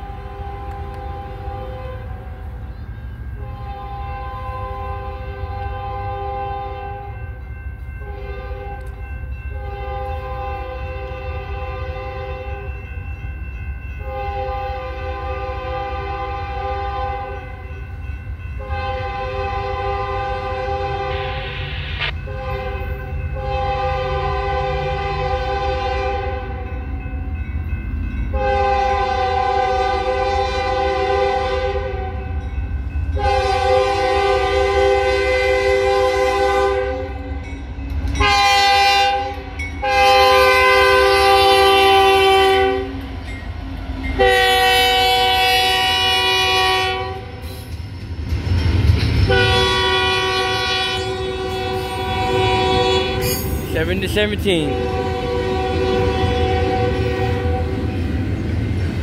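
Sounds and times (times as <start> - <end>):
locomotive air horn blasts: 0.0 - 2.3, 3.4 - 7.2, 8.0 - 8.9, 9.5 - 12.7, 14.0 - 17.5, 18.6 - 21.6, 22.2 - 26.6, 28.3 - 32.3, 33.2 - 37.2, 38.2 - 43.0, 44.2 - 47.4, 49.3 - 57.9.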